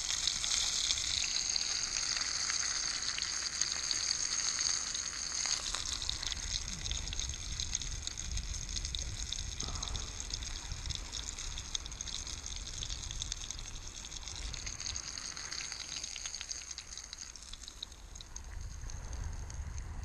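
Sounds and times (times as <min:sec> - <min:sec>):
fish sizzling in a pan: 0:00.0 - 0:19.0
low rumble: 0:05.7 - 0:14.7, 0:18.4 - 0:20.0.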